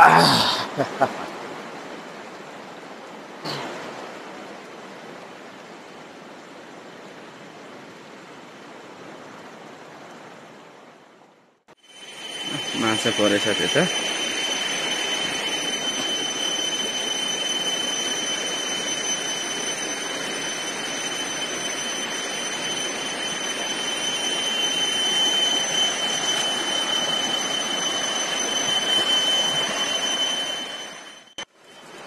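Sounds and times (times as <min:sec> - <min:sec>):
high-pitched tone: 0:11.8 - 0:31.5.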